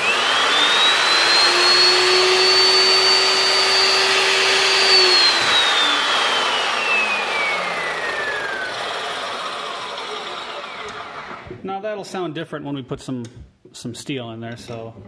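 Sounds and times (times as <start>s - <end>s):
chop saw motor whine: 0.0s - 11.6s.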